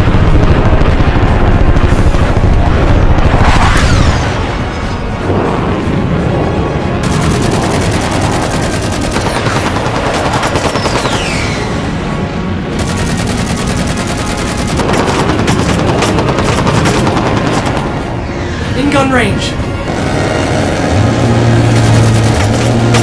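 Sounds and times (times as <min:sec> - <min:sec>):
music: 0:00.0 - 0:23.0
rapid cannon gunfire: 0:07.0 - 0:11.4, 0:12.8 - 0:18.0, 0:21.6 - 0:23.0.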